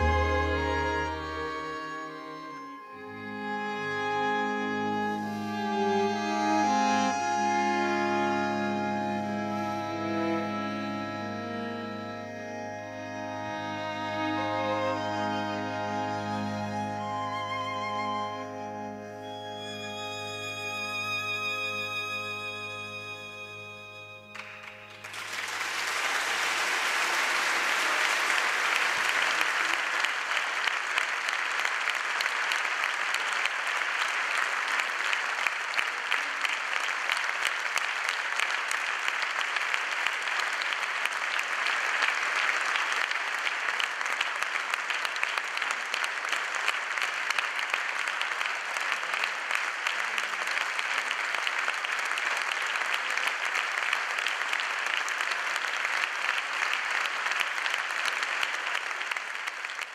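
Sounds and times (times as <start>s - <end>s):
audience applauding: 0.0s - 7.1s, 24.3s - 59.9s.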